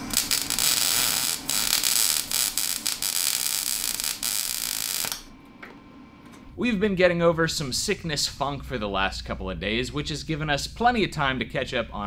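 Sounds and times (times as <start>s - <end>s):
arc welding crackling hiss: 0.0s - 5.3s.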